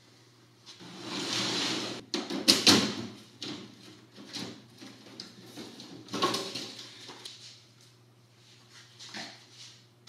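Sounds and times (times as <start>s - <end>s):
cabinet scraping on concrete: 0.8s - 2.0s.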